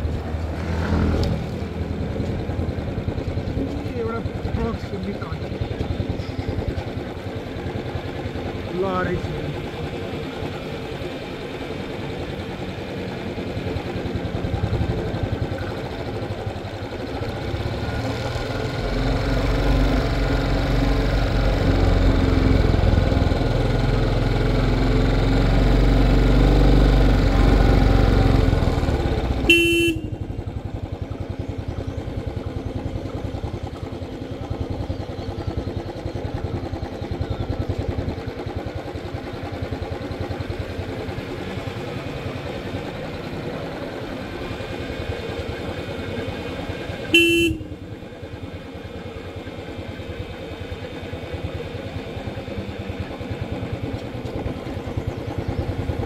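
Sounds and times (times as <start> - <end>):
motorcycle engine running: 0.0 - 56.0
motorcycle horn tooting: 29.4 - 30.4, 47.1 - 47.9.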